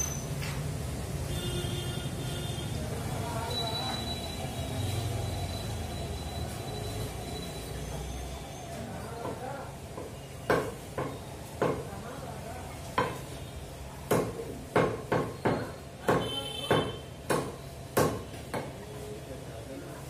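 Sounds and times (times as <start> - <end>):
cleaver chopping on wooden block: 14.1 - 18.8.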